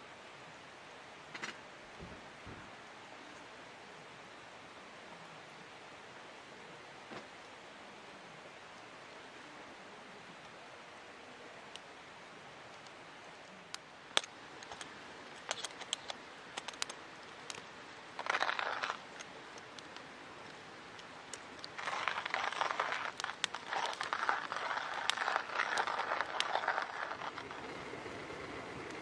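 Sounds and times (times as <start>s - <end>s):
sharp clicks: 13.7s - 20.6s
coffee grinder crunching beans: 18.2s - 19.9s, 21.0s - 29.0s.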